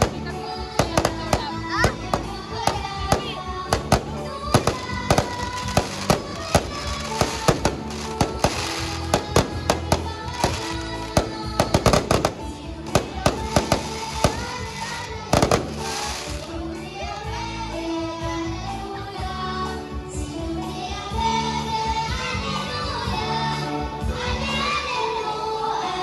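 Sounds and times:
fireworks bursting: 0:00.0 - 0:16.6
music: 0:00.0 - 0:26.0.

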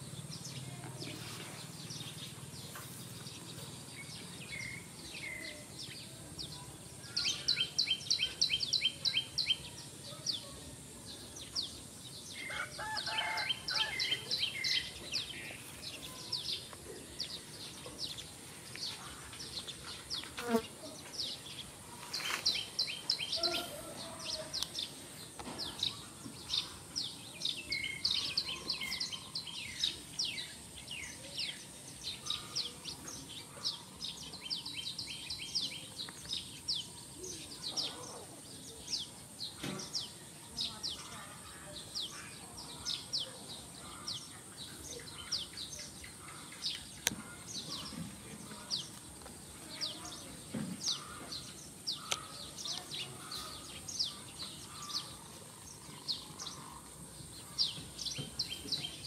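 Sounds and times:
birds chirping: 0:00.0 - 0:59.0.

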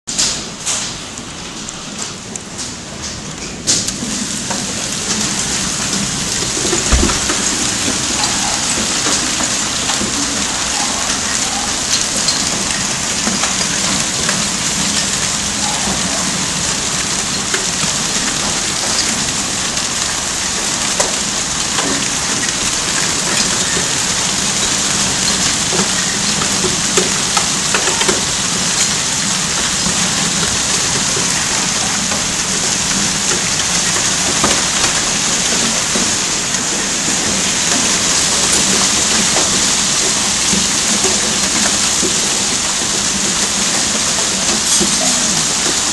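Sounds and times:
hail and heavy rain: 0:00.1 - 0:45.9
low thump: 0:06.9 - 0:07.6.

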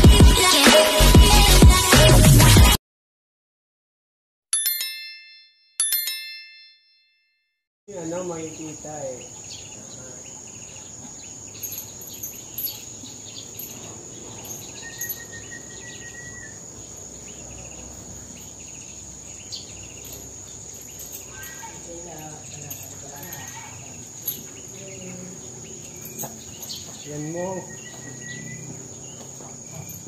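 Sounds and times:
insects droning: 0:07.9 - 0:30.0
bird chirps: 0:08.0 - 0:30.0.

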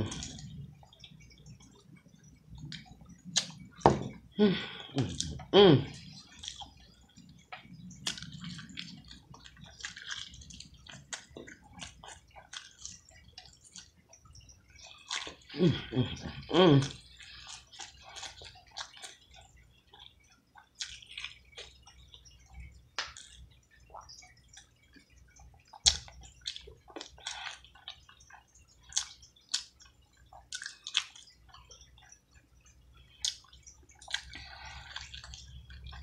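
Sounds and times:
mouth chewing wetly: 0:04.7 - 0:36.0
lip smacks: 0:33.2 - 0:36.0.

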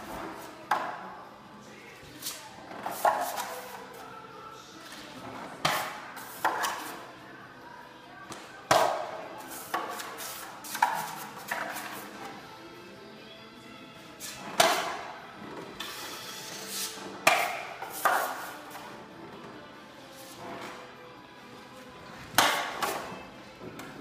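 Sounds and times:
taping knife scraping metal pan: 0:15.8 - 0:18.6.

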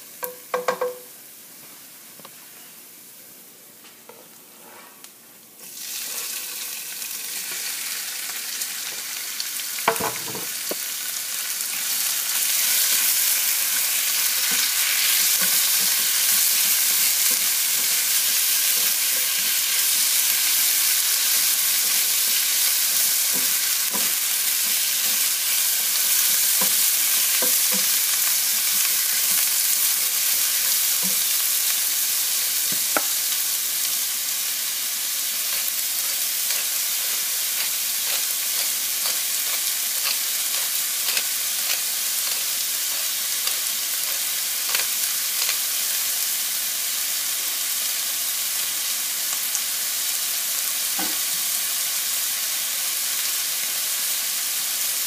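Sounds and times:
knocks in frying pan: 0:00.2 - 0:01.1, 0:09.9 - 0:10.5
chicken sizzling in frying pan: 0:05.6 - 0:55.0.

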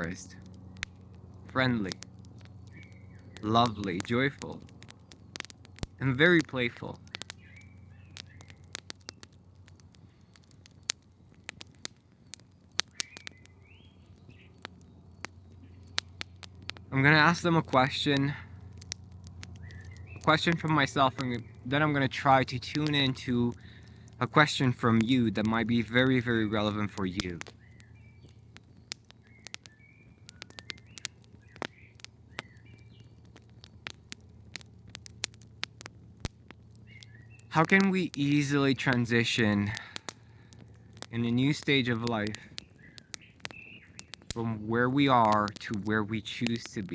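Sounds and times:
low steady background: 0:00.0 - 0:46.9
low steady hum: 0:00.0 - 0:46.9
sharp clicks and crackles: 0:00.0 - 0:46.9
high bird chirps: 0:02.4 - 0:04.0, 0:07.2 - 0:09.2, 0:11.7 - 0:16.8, 0:19.6 - 0:20.3, 0:27.5 - 0:33.8, 0:36.8 - 0:37.6, 0:42.6 - 0:44.3.

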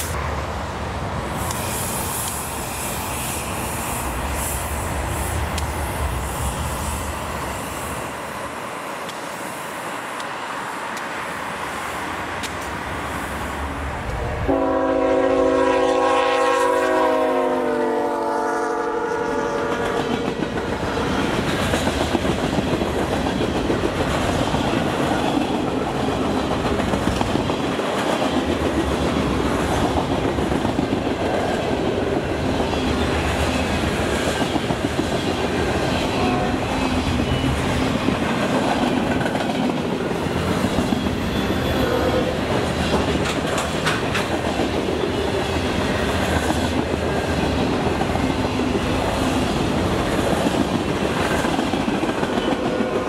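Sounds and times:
train wheels rumbling on rail: 0:00.0 - 0:53.0
freight cars clickety-clack rattling: 0:37.3 - 0:48.2.

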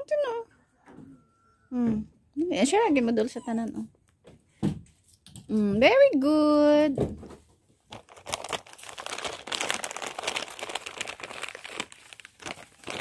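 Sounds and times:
crinkling and crackling: 0:07.4 - 0:13.0.

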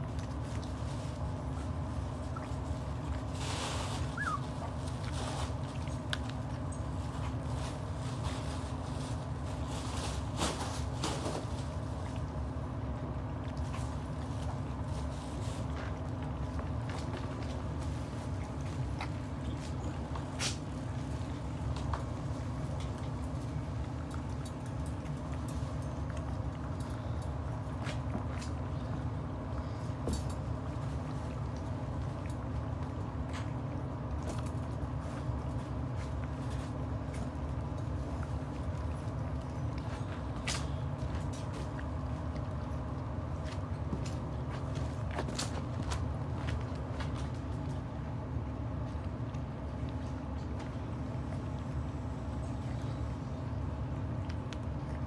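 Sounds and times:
low background hum: 0:00.0 - 0:55.0
puppies crunching kibble: 0:00.0 - 0:55.0
puppy squeak: 0:04.0 - 0:04.6.

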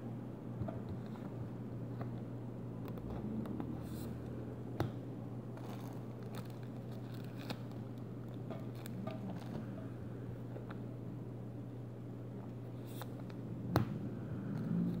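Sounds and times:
steady low hum: 0:00.0 - 0:15.0
plastic sleeves crinkling: 0:05.5 - 0:09.7.

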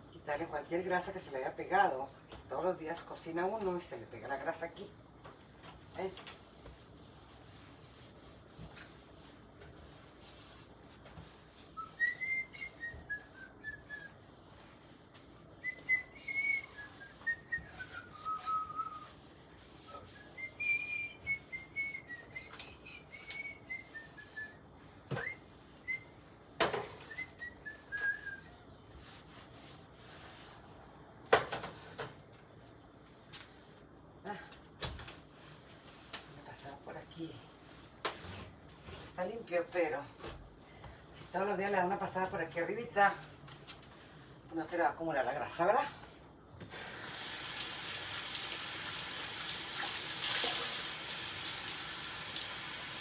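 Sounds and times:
scrubbing a stove: 0:05.7 - 0:22.5, 0:27.1 - 0:30.9
person whistling a slow tune: 0:11.8 - 0:14.2, 0:15.6 - 0:19.1, 0:19.9 - 0:26.2, 0:27.0 - 0:28.6.

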